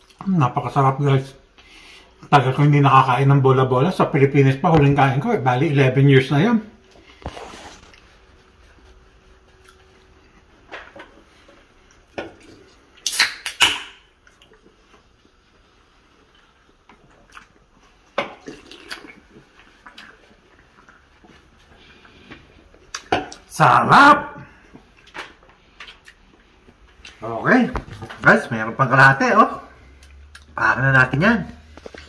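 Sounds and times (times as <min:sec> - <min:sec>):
person chewing: 0:00.0 - 0:00.2, 0:09.4 - 0:10.4, 0:11.8 - 0:15.5, 0:16.2 - 0:23.5, 0:24.6 - 0:27.2, 0:29.8 - 0:30.6
rustling: 0:06.8 - 0:11.8.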